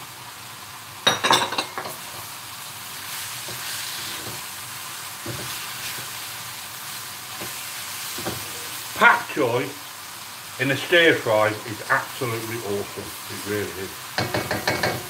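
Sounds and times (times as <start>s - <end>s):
vegetables sizzling in a wok: 0.0s - 15.0s
spatula scraping in a wok: 3.0s - 8.9s.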